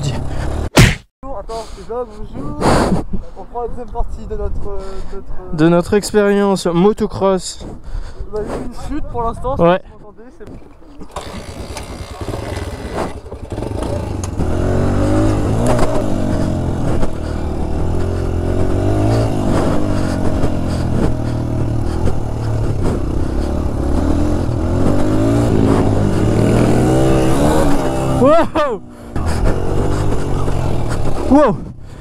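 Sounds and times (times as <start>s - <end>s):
dirt bike engine revving: 0.0s - 0.7s, 11.0s - 32.0s.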